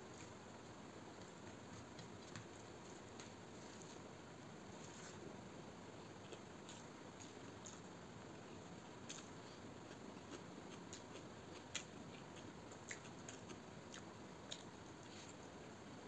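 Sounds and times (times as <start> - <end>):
steady hiss: 0.0 - 16.0
person chewing food: 6.2 - 7.9, 9.0 - 15.4.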